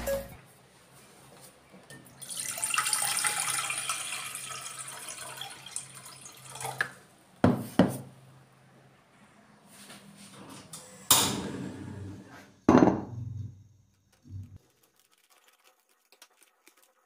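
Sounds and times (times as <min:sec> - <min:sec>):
water pouring into metal pot: 0:02.2 - 0:06.9, 0:14.6 - 0:17.0.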